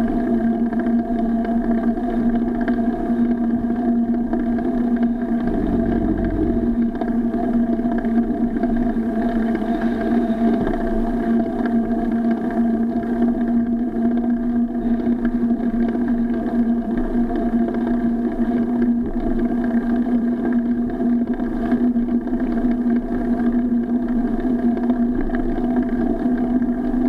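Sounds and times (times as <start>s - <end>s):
constant low hum: 4.4s - 8.1s
heavy low rumble: 5.3s - 7.6s
wind noise: 5.4s - 7.2s.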